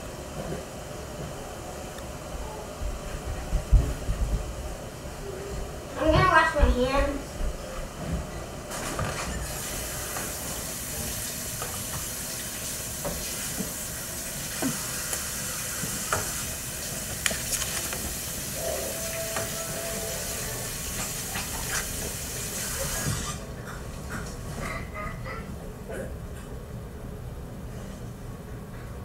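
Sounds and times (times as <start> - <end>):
tap water running into sink: 9.4 - 23.4.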